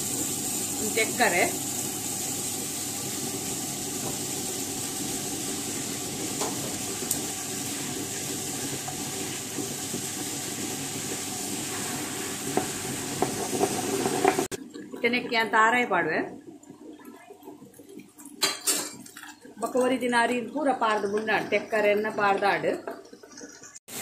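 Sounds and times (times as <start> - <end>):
wet grinder running: 0.0 - 14.6.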